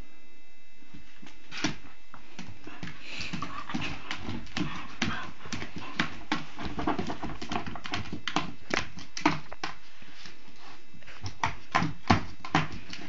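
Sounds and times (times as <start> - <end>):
dog claws clicking on tiles: 2.4 - 9.8.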